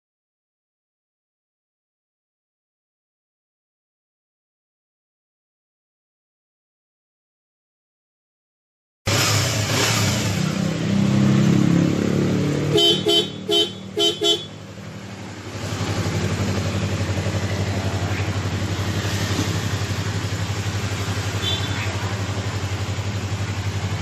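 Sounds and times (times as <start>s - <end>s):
motorcycle engine revving: 9.1s - 24.0s
horn toots: 12.7s - 14.6s, 21.3s - 22.0s.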